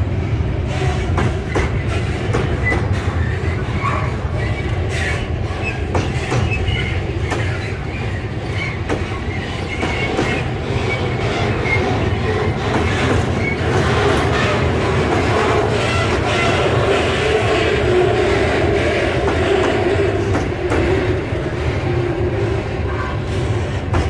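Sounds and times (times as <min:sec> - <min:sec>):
freight wagons rumbling on rails: 0:00.0 - 0:24.0
wheel squeal: 0:01.4 - 0:14.6.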